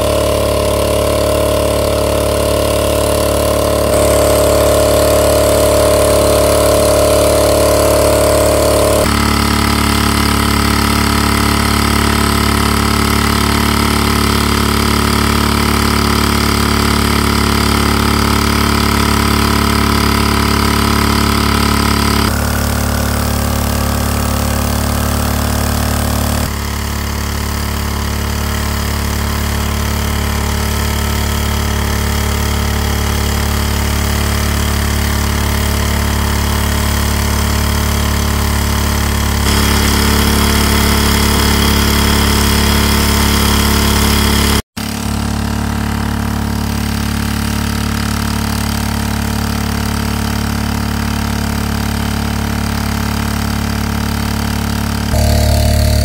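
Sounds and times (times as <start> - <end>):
water pump engine running: 0.0 - 56.0
water gushing from hose: 28.4 - 45.0.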